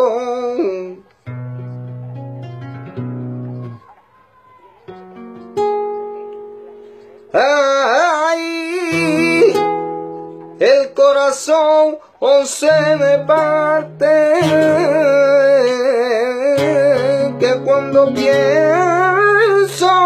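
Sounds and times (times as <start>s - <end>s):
man singing melismatic vocals: 0.0s - 1.1s, 7.3s - 20.0s
flamenco guitar chords: 0.0s - 3.9s, 4.9s - 20.0s.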